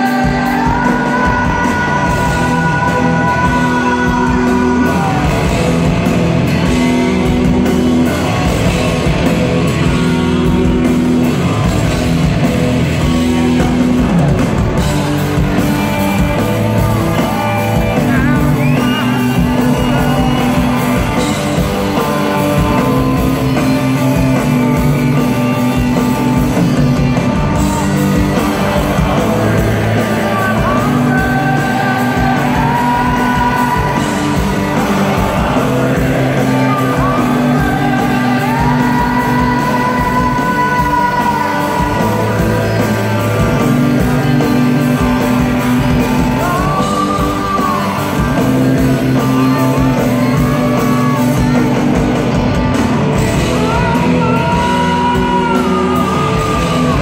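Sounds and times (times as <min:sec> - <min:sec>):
man singing: 0:00.0 - 0:06.2, 0:16.7 - 0:24.6, 0:27.0 - 0:51.6, 0:53.2 - 0:57.0
drums: 0:00.0 - 0:57.0
electric guitars: 0:00.0 - 0:57.0.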